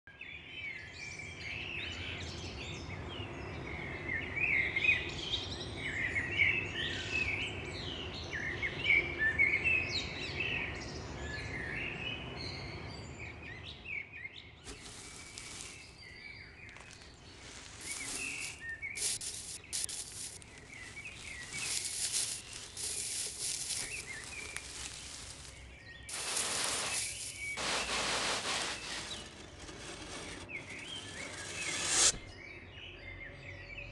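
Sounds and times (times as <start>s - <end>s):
small birds chirping: 0.4s - 33.9s
hissing noise bursts: 17.4s - 32.3s.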